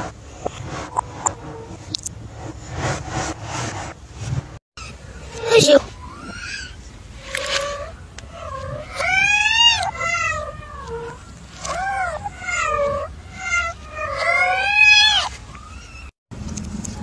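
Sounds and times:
kitten meowing: 0:07.4 - 0:15.3.

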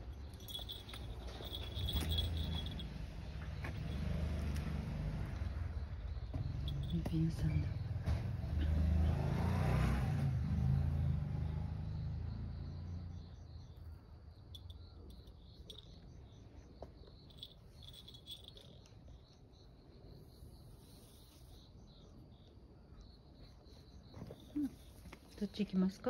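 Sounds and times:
crickets chirping: 0:00.0 - 0:26.0.

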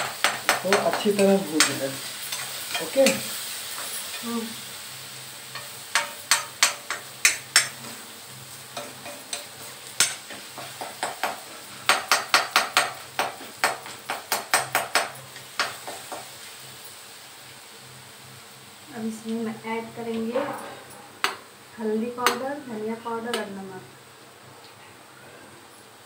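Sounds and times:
spoon scraping and knocking on metal pan: 0:00.0 - 0:04.2, 0:05.5 - 0:08.0, 0:08.8 - 0:16.3, 0:20.2 - 0:21.5, 0:22.2 - 0:22.4
low oil sizzle: 0:00.0 - 0:26.0.

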